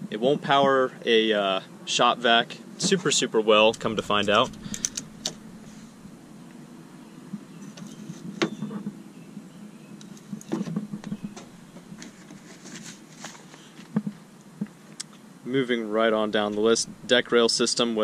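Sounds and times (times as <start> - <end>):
low steady hum: 3.5 - 8.2, 9.8 - 12.5, 15.9 - 18.0.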